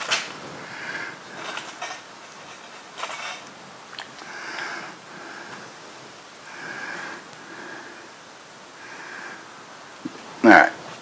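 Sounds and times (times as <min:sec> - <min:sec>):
low steady hiss: 0:00.0 - 0:11.0
soft breathing: 0:00.4 - 0:02.0, 0:04.0 - 0:09.8.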